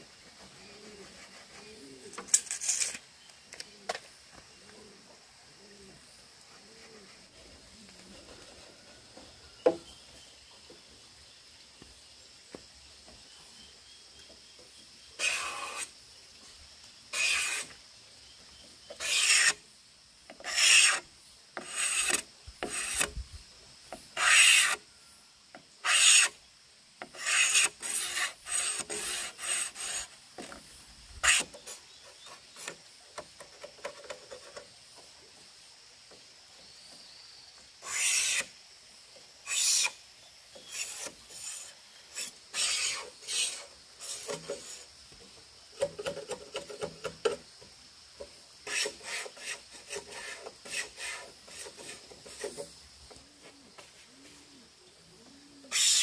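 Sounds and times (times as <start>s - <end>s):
hand tool scraping bamboo: 0.8s - 3.0s, 15.2s - 15.9s, 17.1s - 17.7s, 18.9s - 19.6s, 20.3s - 23.2s, 23.9s - 24.8s, 25.8s - 26.4s, 27.0s - 30.6s, 31.2s - 34.7s, 37.8s - 38.5s, 39.5s - 40.0s, 40.6s - 44.9s, 48.6s - 52.8s, 55.7s - 56.0s.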